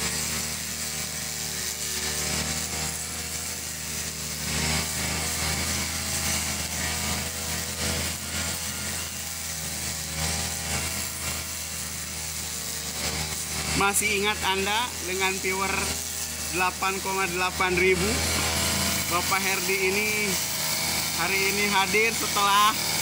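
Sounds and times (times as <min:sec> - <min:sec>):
brush cutter engine mowing grass: 0:00.0 - 0:23.0.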